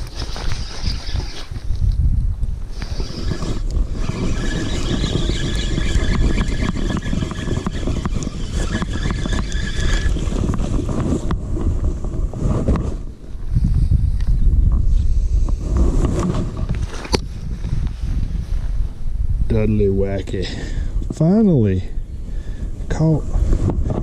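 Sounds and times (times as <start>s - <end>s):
spinning reel whirring and clicking: 0.0s - 1.7s, 2.7s - 11.3s.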